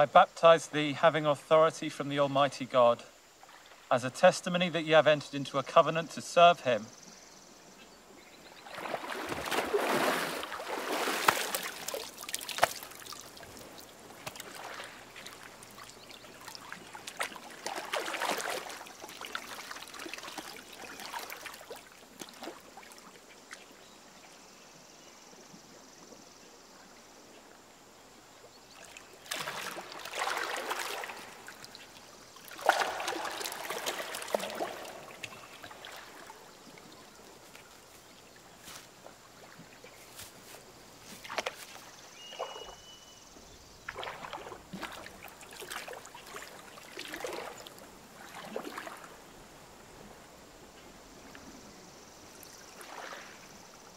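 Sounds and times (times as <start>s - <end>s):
water splashing: 8.6s - 23.6s, 28.8s - 37.9s, 43.8s - 49.2s, 52.4s - 53.6s
water lapping: 8.6s - 23.8s, 28.7s - 43.0s, 43.8s - 49.4s, 52.3s - 53.7s.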